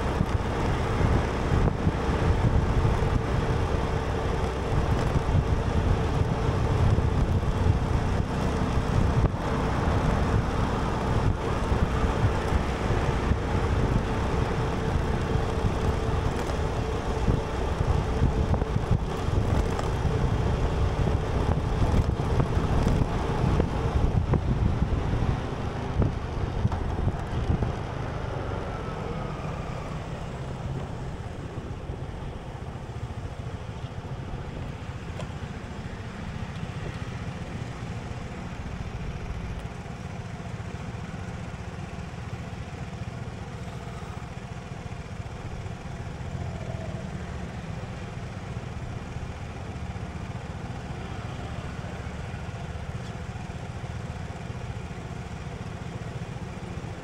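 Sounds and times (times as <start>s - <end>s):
wind rumble on microphone: 0.0s - 37.7s
road traffic: 0.0s - 57.0s.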